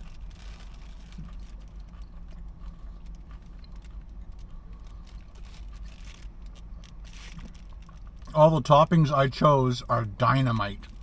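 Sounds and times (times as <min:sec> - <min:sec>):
man chewing food: 0:00.0 - 0:08.3
low steady hum: 0:00.0 - 0:11.0.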